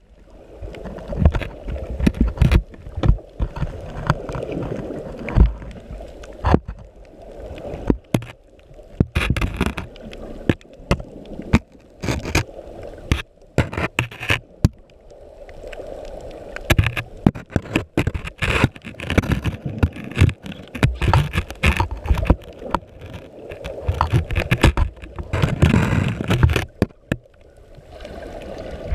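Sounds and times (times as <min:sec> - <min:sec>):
camera housing knocking on coral: 0:16.7 - 0:22.8.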